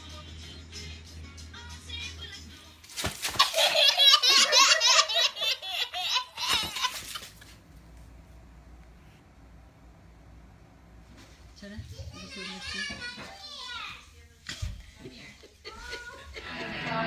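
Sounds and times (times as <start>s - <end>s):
baby laughing: 3.3s - 7.5s.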